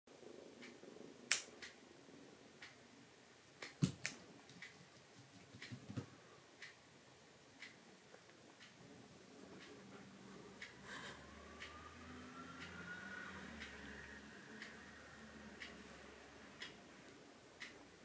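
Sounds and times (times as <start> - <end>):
faint regular ticking: 0.5 - 18.0
soft handling bumps: 3.8 - 6.2.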